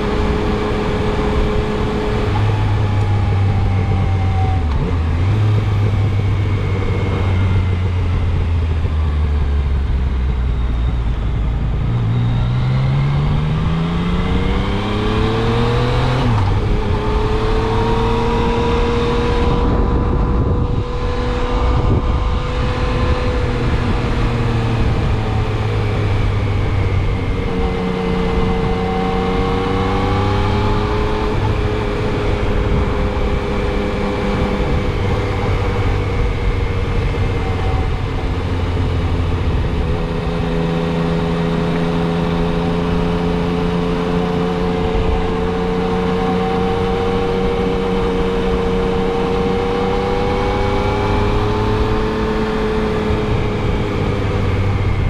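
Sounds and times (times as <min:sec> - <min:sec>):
motorcycle engine running: 0:00.0 - 0:55.0
wind rushing: 0:13.6 - 0:40.8.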